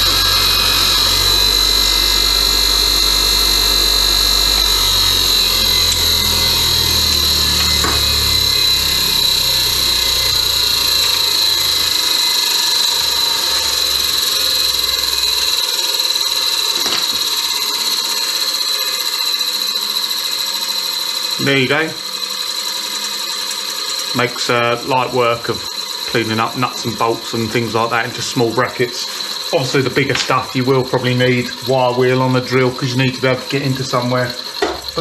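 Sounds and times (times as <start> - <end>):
bench grinder whining: 0.0 - 35.0
wire wheel scratching metal: 0.0 - 35.0.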